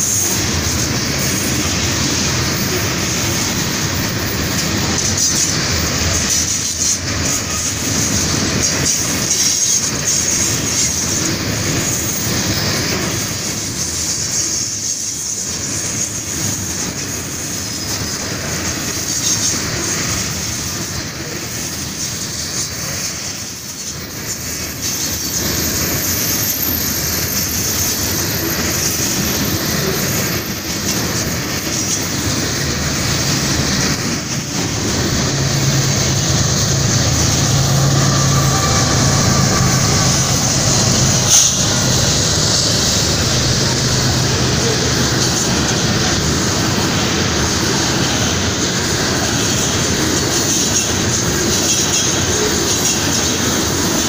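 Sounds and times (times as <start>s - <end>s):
train wheels clattering over rail joints: 0.0s - 54.0s
high-pitched wheel squeal: 24.7s - 30.9s, 34.6s - 45.6s.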